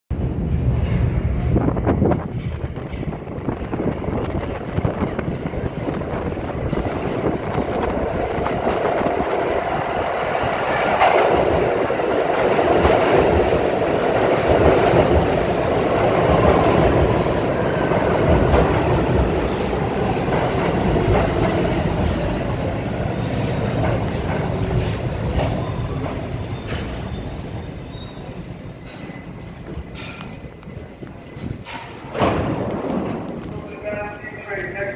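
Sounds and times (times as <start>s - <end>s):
train wheels rumbling on rails: 0.1s - 34.9s
brake squeal: 25.6s - 30.2s.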